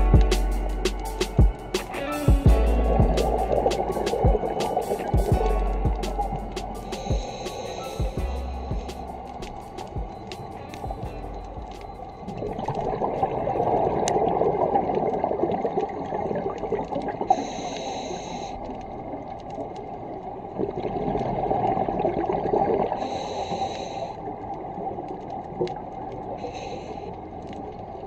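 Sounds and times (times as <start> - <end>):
regulator hissing inhalation: 0.4 - 9.8, 17.3 - 18.6, 23.0 - 24.2.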